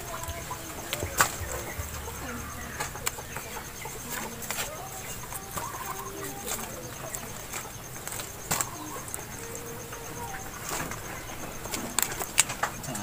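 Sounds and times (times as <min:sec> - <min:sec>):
faint animal calls: 0:00.0 - 0:13.0.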